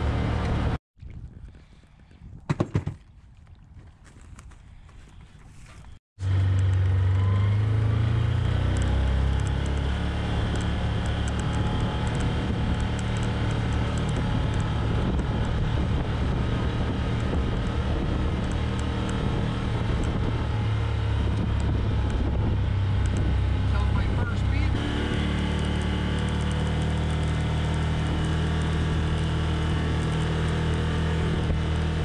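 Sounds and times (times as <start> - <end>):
vehicle engine drone: 0.0 - 0.8, 4.8 - 32.0.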